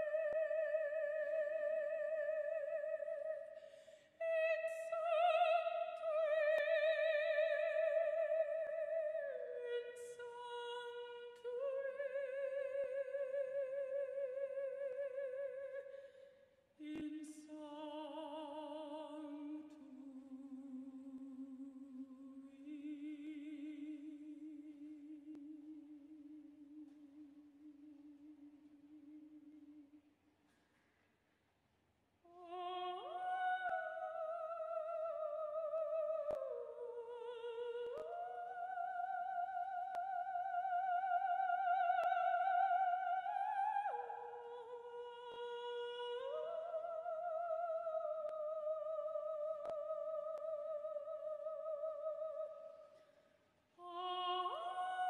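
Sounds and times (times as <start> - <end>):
click: 24.7 - 25.7, 36.1 - 36.6, 37.8 - 38.3, 39.8 - 40.2, 41.8 - 42.5, 48.1 - 50.7.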